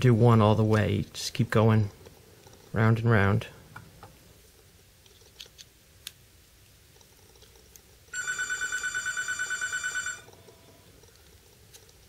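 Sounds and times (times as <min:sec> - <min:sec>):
phone ringing: 0:08.1 - 0:10.6.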